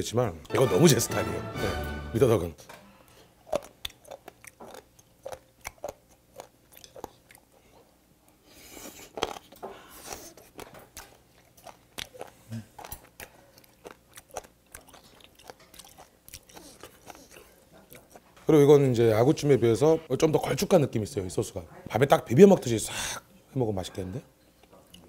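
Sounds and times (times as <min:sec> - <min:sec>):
crunchy chewing and mouth clicks: 0:03.1 - 0:18.3.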